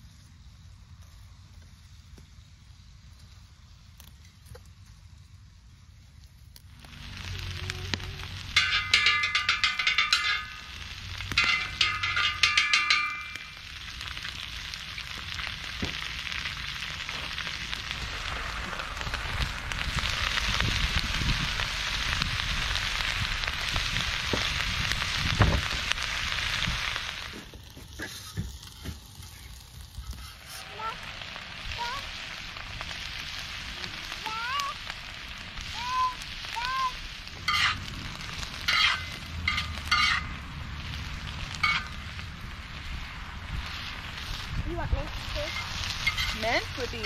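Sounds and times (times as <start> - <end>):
steady hiss: 0.0 - 47.0
food sizzling in a pan: 6.4 - 47.0
bright ringing clinks: 8.5 - 13.7.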